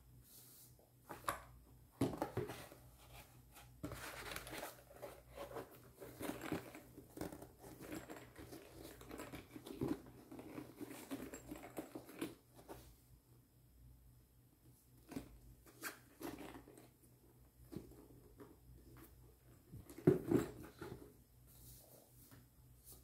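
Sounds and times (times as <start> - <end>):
case rustling and scraping: 2.1 - 12.9, 17.7 - 22.1.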